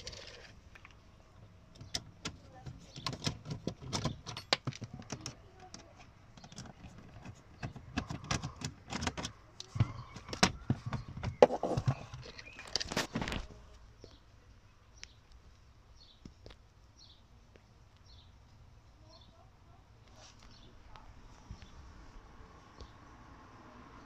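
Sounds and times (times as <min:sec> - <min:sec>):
plastic trim panel rattling: 0:01.8 - 0:13.4.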